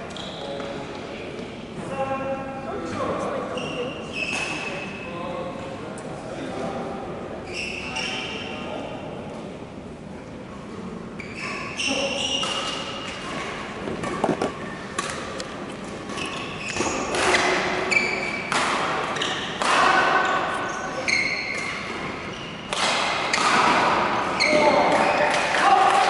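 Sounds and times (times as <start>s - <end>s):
shoes squeaking on court: 0.1s - 0.8s, 11.2s - 19.6s, 20.2s - 22.7s
racket hitting shuttlecock: 12.4s - 20.2s, 22.7s - 24.1s.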